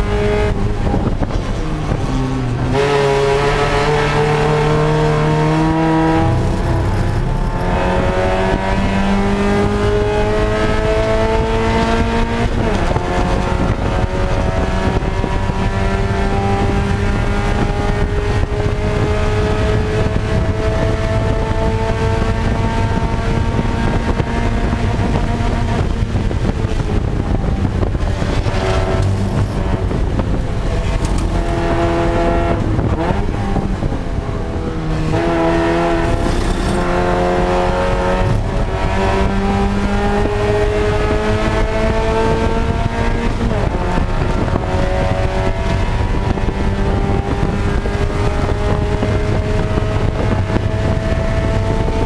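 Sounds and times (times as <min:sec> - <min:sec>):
race car engine revving: 0:00.0 - 0:52.0.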